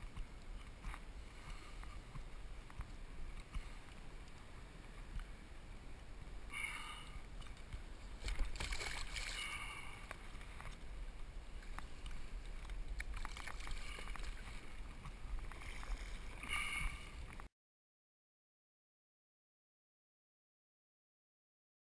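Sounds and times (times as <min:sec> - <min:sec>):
water sloshing and splashing: 0:07.2 - 0:17.5.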